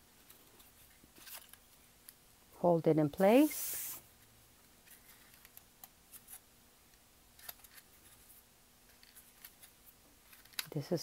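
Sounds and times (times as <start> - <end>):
paper crinkling: 0.2 - 1.6, 7.4 - 10.7.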